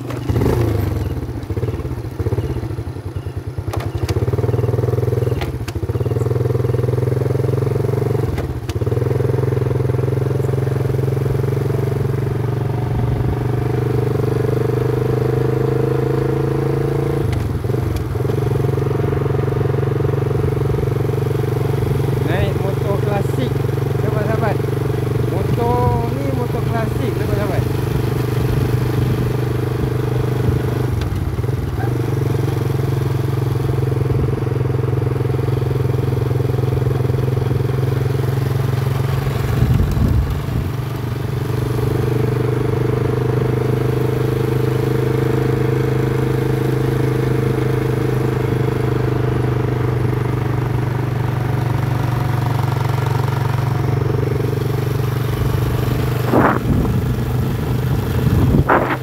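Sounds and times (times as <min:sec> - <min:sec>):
motorcycle engine running: 0:00.0 - 0:59.0
short sharp sounds: 0:58.6 - 0:59.0.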